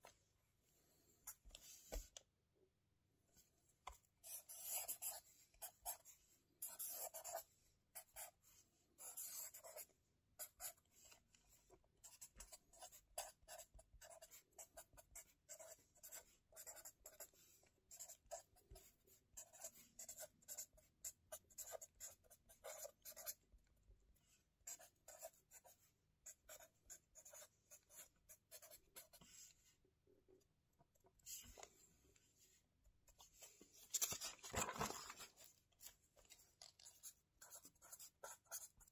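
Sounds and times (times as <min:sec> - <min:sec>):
pen scratching on paper: 0:04.2 - 0:08.4, 0:09.0 - 0:11.2, 0:12.0 - 0:23.4, 0:24.6 - 0:29.5, 0:36.8 - 0:38.9.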